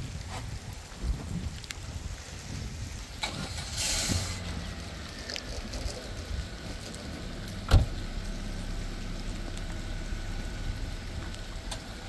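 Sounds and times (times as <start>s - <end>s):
vehicle engine rumbling: 0.0s - 12.0s
heavy thump: 7.5s - 9.0s.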